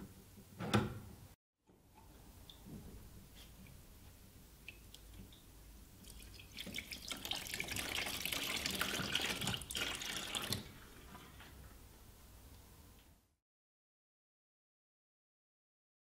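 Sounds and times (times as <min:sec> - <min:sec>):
water running out of valve: 0:06.5 - 0:11.4.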